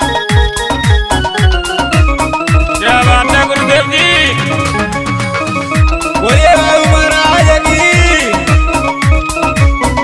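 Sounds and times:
held melody line: 0.0 - 10.0
deep drum hits: 3.6 - 6.5.

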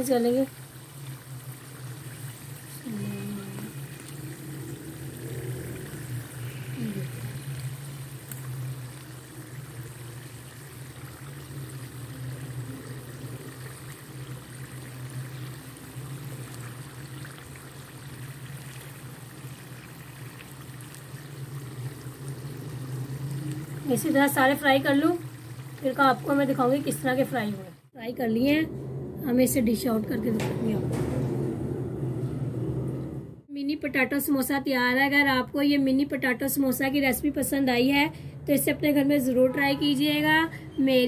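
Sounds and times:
deep-frying bubbling sizzle: 0.0 - 27.9
low hum: 21.2 - 33.5.

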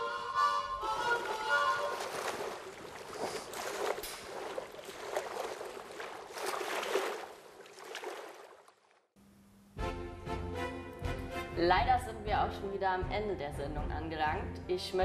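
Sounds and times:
sea waves washing in: 0.8 - 8.7.

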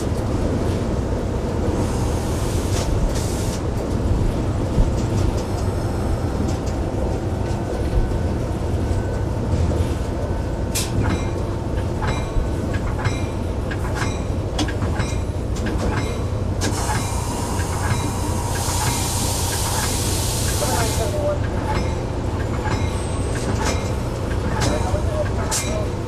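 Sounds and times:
locomotive engine rumble: 0.0 - 26.0
hiss: 1.8 - 3.6, 16.7 - 21.2.

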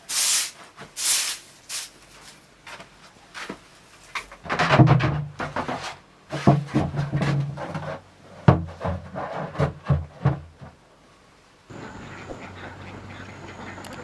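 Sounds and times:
plastic bins knocking and scraping: 3.4 - 10.8
ducks calling: 11.7 - 14.0.

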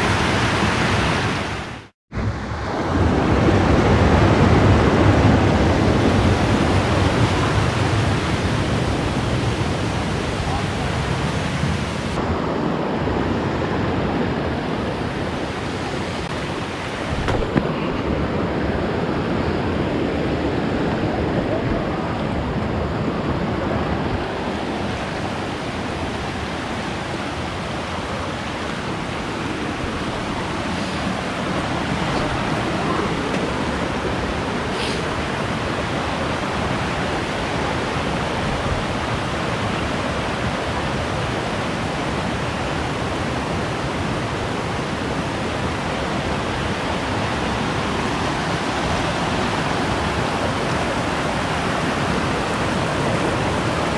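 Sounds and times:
creek water rushing over rocks: 14.3 - 53.9.

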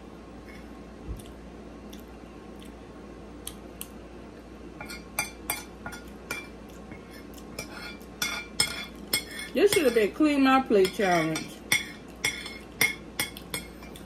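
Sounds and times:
cutlery clinking on plate: 7.6 - 10.0, 10.9 - 14.0.

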